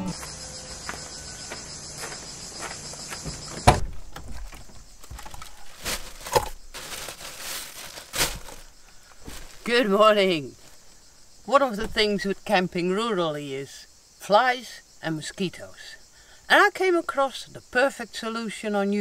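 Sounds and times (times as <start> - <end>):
insects shrilling: 0.0 - 19.0
sharp thump: 3.6 - 4.3
plastic bag rustling: 4.2 - 9.9.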